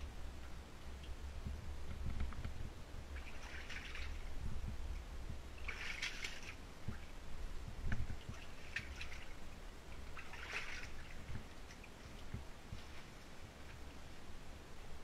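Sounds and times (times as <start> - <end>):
steady low rumble: 0.0 - 15.0
shallow water splashing: 3.1 - 4.4, 5.5 - 13.4.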